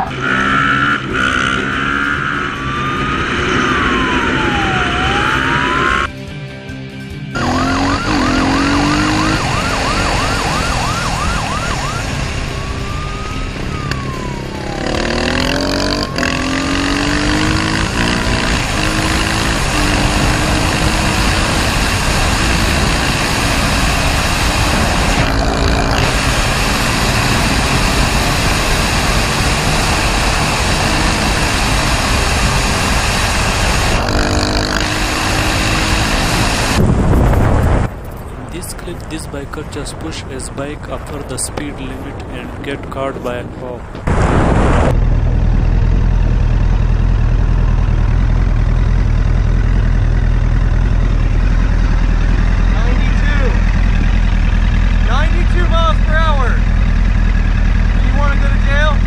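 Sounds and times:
siren wailing: 0:00.0 - 0:06.1, 0:07.4 - 0:36.8
dirt bike engine running: 0:00.0 - 0:38.6, 0:43.8 - 0:59.0
wind noise: 0:17.6 - 0:46.6.

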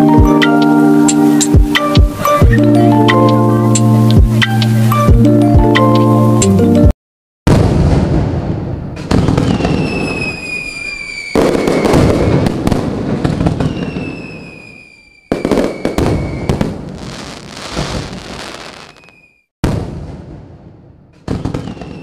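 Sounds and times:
loud firework bursts: 0:07.5 - 0:20.5
fireworks crackling and popping: 0:07.5 - 0:20.6, 0:21.2 - 0:22.0
falling firework whistle: 0:09.1 - 0:19.5, 0:21.4 - 0:22.0.

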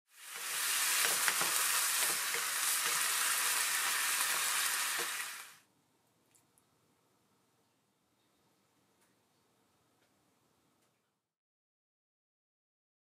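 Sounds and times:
meat sizzling in a frying pan: 0:00.1 - 0:05.6.

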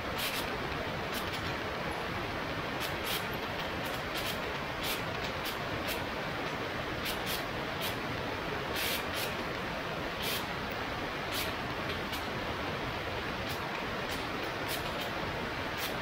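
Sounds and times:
short hissing gusts: 0:00.0 - 0:00.5, 0:02.7 - 0:06.2, 0:06.8 - 0:09.4, 0:10.0 - 0:16.0
rush of airflow: 0:00.0 - 0:16.0.

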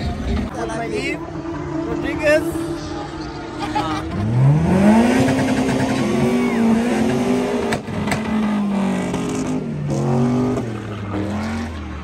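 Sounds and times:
car engine revving hard: 0:04.1 - 0:11.8.

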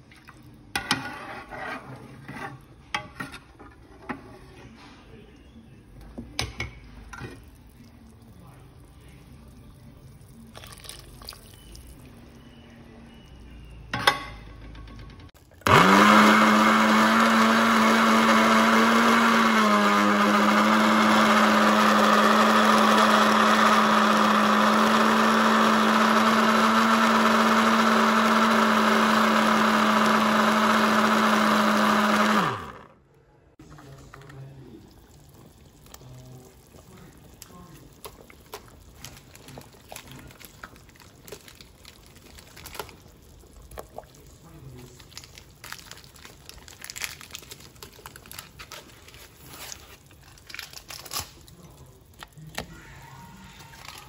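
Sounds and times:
electric blender grinding: 0:15.6 - 0:32.9.

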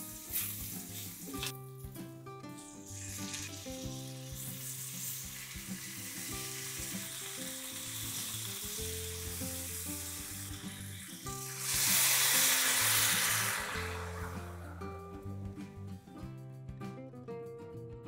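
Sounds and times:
water poured into hot pan: 0:00.0 - 0:01.5, 0:02.6 - 0:14.8
oil sizzling in a frying pan: 0:00.0 - 0:15.3.

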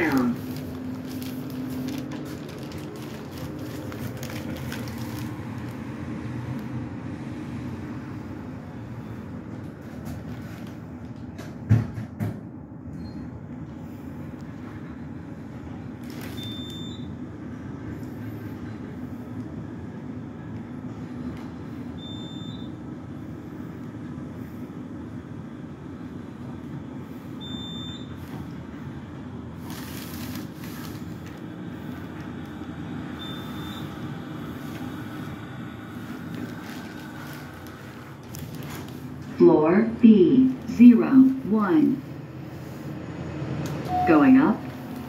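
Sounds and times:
elevator rumble and hum: 0:00.0 - 0:45.0
short high beep: 0:43.9 - 0:44.9.

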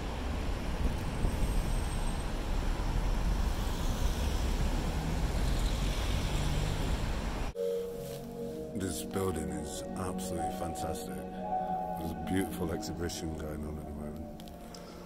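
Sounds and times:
wind rumble on microphone: 0:00.0 - 0:07.3
traffic hum: 0:00.0 - 0:07.6.

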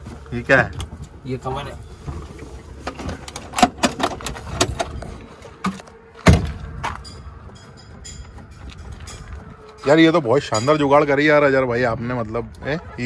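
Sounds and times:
loud thump: 0:06.2 - 0:06.7.

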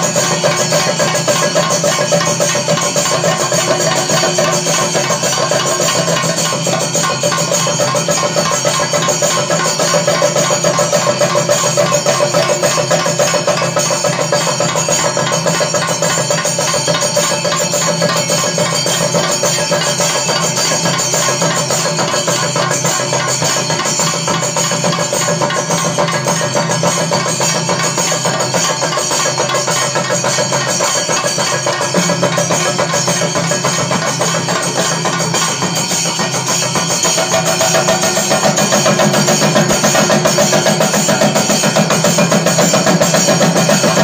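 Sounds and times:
deep drums keeping the beat: 0:00.0 - 0:44.0
hand cymbals clashing: 0:00.0 - 0:44.0
stick-beaten drums fast strokes: 0:00.0 - 0:44.0.

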